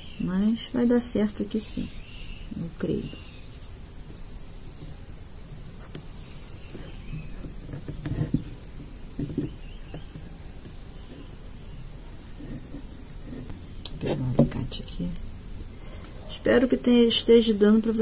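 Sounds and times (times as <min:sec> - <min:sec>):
rustling and handling: 0:04.0 - 0:14.8.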